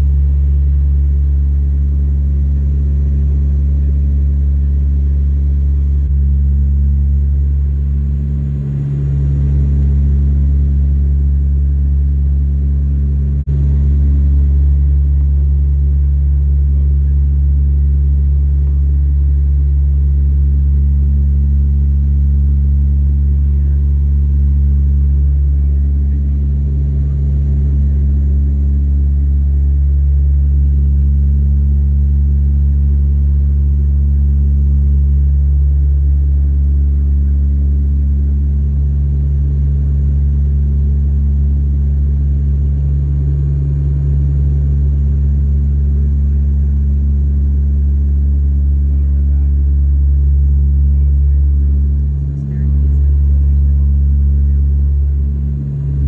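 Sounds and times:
airplane engines droning: 0:48.6 - 0:56.0.

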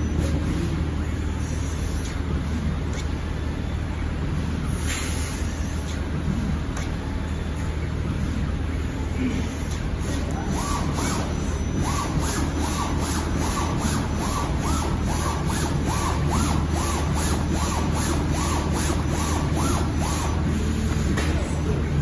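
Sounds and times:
low machine hum: 0:00.0 - 0:22.0
cutting plotter motor whine: 0:09.8 - 0:22.0.

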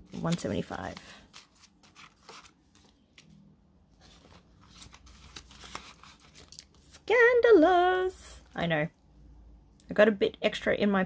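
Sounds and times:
banknotes and plastic crinkling: 0:00.0 - 0:07.1.

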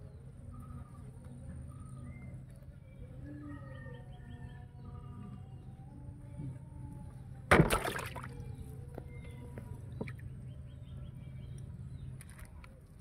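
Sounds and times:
fish splashing into water: 0:07.5 - 0:08.4.

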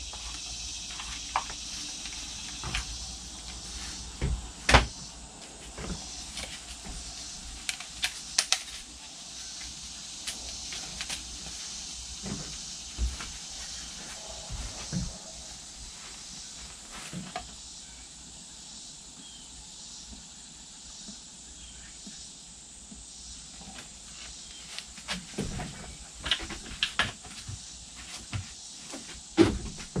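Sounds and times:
faint steady hiss: 0:00.0 - 0:30.0
plastic jugs knocking and clicking: 0:01.0 - 0:05.0, 0:25.1 - 0:30.0.

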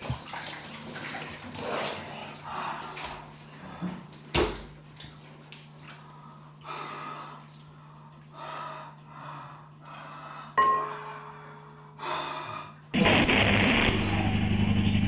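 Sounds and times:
steady low hum: 0:05.9 - 0:15.0
loud held tone: 0:13.0 - 0:15.0.

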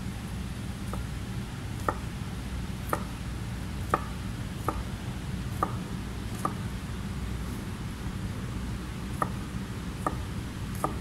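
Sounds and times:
knife chopping on plastic board: 0:00.9 - 0:01.1, 0:01.8 - 0:02.1, 0:02.8 - 0:03.2, 0:03.8 - 0:04.9, 0:05.5 - 0:06.6, 0:09.1 - 0:09.4, 0:10.0 - 0:11.0.

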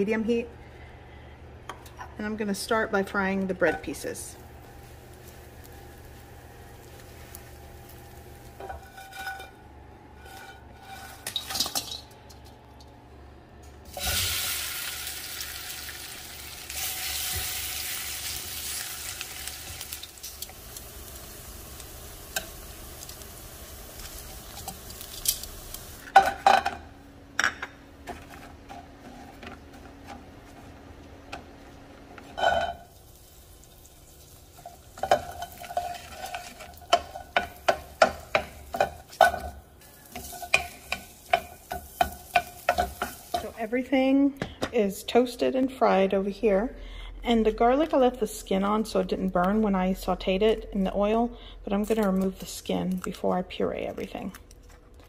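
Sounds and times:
food sizzling in oil: 0:04.1 - 0:09.5, 0:13.9 - 0:26.2, 0:32.4 - 0:43.8
wooden spoon stirring: 0:34.6 - 0:39.4
utensil knocking on pan: 0:36.9 - 0:39.4.

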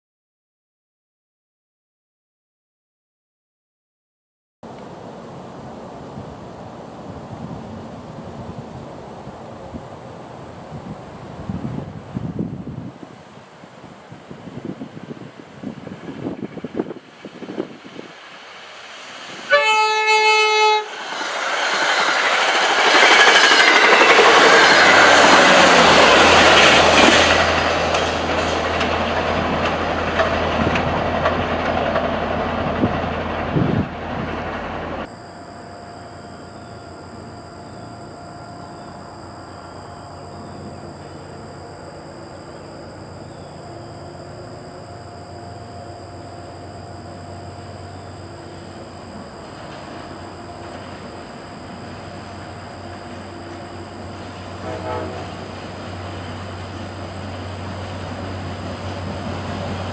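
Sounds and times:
diesel locomotive hum: 0:04.7 - 0:59.9
train wheel and rail noise: 0:04.7 - 0:59.9
train horn blast: 0:19.4 - 0:21.0, 0:54.3 - 0:56.0.

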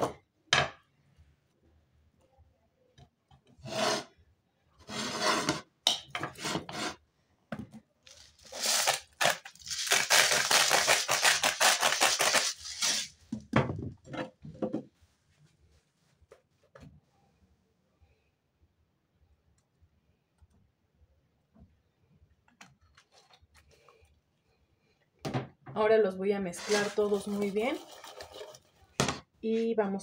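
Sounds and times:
vegetables rustling in a bowl: 0:08.1 - 0:13.2, 0:26.6 - 0:29.8.

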